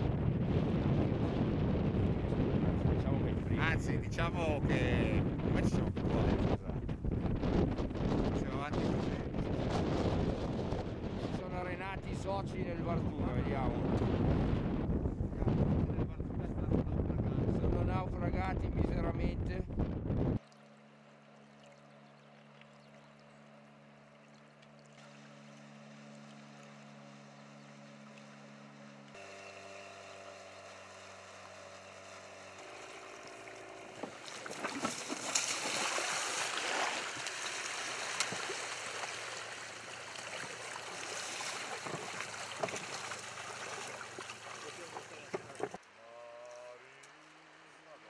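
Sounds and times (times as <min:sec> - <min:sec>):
outboard motor humming: 0:00.0 - 0:15.3, 0:19.9 - 0:48.0
water splashing and rushing: 0:30.6 - 0:45.8.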